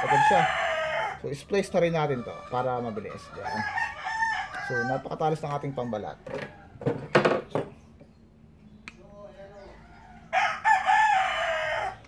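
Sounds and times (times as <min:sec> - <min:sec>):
rooster crowing: 0:00.0 - 0:01.4, 0:02.0 - 0:06.8, 0:09.7 - 0:12.0.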